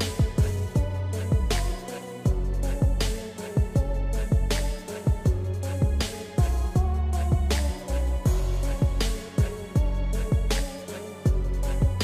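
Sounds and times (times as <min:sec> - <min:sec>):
snare or cymbal hits: 0:00.0 - 0:00.6
background music with beat: 0:00.0 - 0:12.0.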